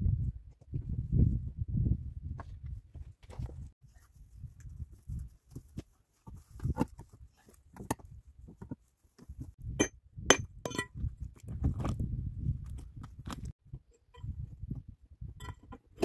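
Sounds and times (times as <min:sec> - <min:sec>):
rocks knocking and scraping: 0:04.6 - 0:16.0.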